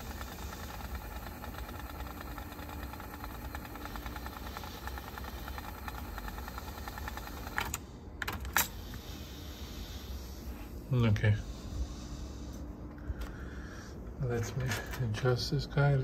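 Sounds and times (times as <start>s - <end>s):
rapid ticking from tape transport: 0.0s - 7.8s
cassette deck whirring: 0.0s - 9.1s.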